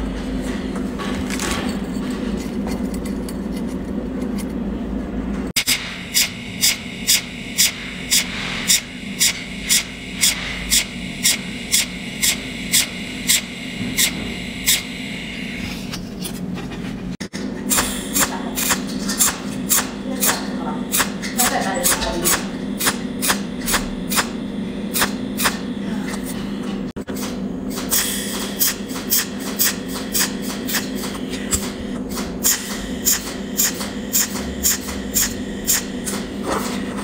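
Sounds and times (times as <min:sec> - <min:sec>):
steady electrical hum: 0:00.0 - 0:37.0
welding arc snaps: 0:05.6 - 0:14.9, 0:17.7 - 0:25.6.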